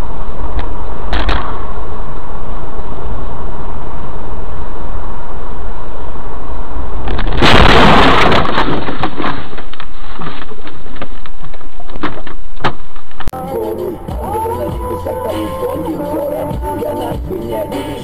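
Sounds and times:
road and engine noise: 0:00.0 - 0:07.5, 0:10.6 - 0:18.0
car crash smash: 0:07.0 - 0:10.6
cracks and clatters: 0:07.1 - 0:13.3.

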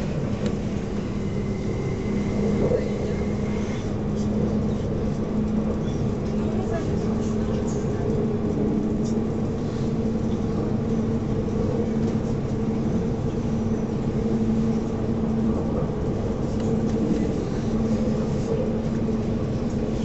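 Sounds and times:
constant low hum: 0:00.0 - 0:20.0
train wheels rumbling on rails: 0:00.0 - 0:20.0.

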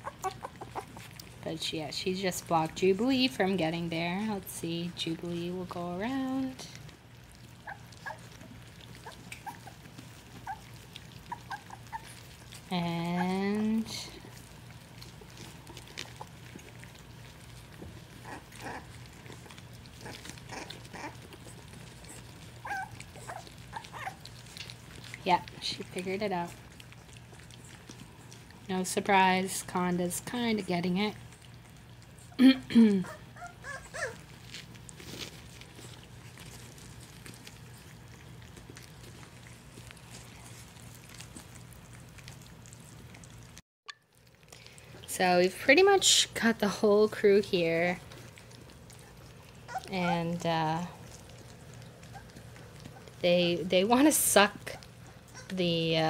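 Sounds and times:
puppy whimper: 0:00.0 - 0:01.4, 0:07.4 - 0:16.9, 0:18.0 - 0:28.6, 0:31.3 - 0:34.4, 0:48.3 - 0:53.2, 0:54.7 - 0:55.6
puppies lapping wet food: 0:00.0 - 0:56.0.

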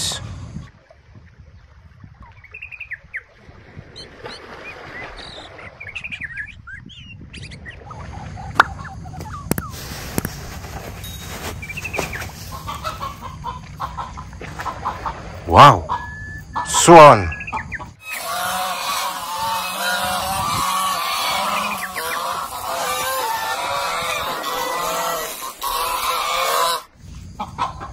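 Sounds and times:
birds chirping: 0:02.2 - 0:03.3, 0:04.0 - 0:27.6.

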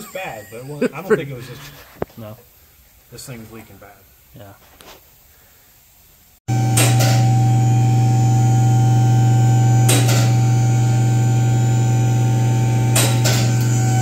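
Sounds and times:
low electrical hum: 0:05.9 - 0:14.0.

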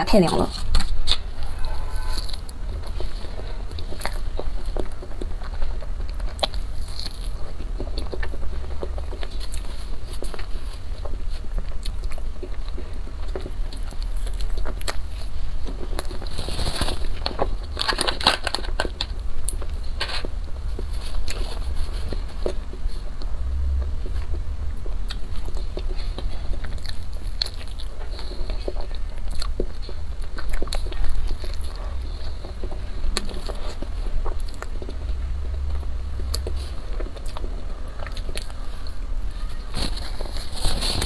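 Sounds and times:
low rumble: 0:00.3 - 0:16.2, 0:19.0 - 0:41.0
person chewing crunchy snack: 0:00.5 - 0:41.0.

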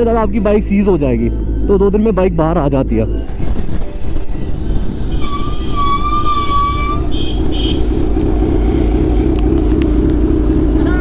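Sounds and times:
motorcycle engine running: 0:00.0 - 0:11.0
wind noise: 0:03.2 - 0:08.8
horn sounding: 0:04.4 - 0:09.3.

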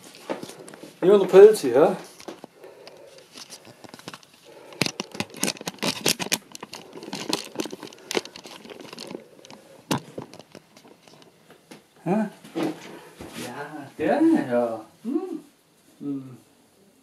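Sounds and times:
rustling and crackling: 0:00.0 - 0:13.7.

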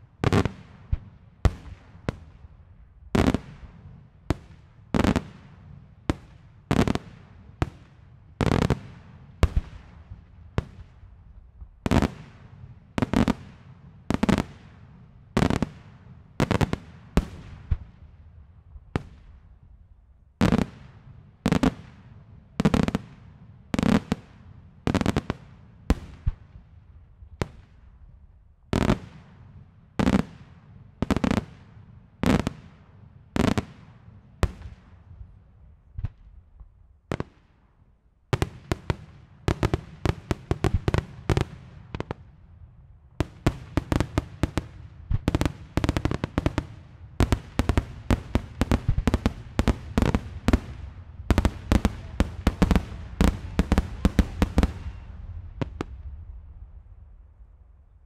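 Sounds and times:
fireworks bursting with bangs: 0:00.2 - 0:02.5, 0:03.1 - 0:11.0, 0:11.6 - 0:18.0, 0:20.4 - 0:26.5, 0:28.7 - 0:32.8, 0:33.4 - 0:35.0, 0:38.3 - 0:42.3, 0:43.2 - 0:57.2.

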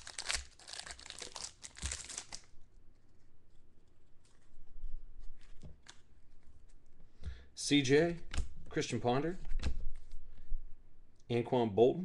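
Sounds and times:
foil wrapper crinkling and tearing: 0:00.0 - 0:02.5
cards rustling and ticking: 0:00.0 - 0:03.2.

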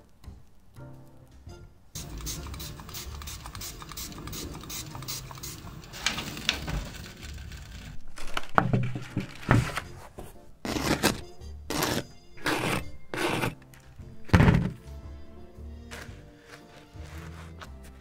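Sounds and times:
knocks and scrapes: 0:04.1 - 0:15.0
bread crackling in oven: 0:05.6 - 0:08.6.

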